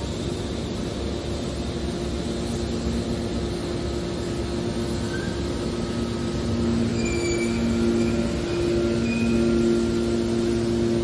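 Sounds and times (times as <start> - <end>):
scrap metal baler drone: 5.0 - 11.0
hydraulic pump two-note hum: 6.4 - 11.0.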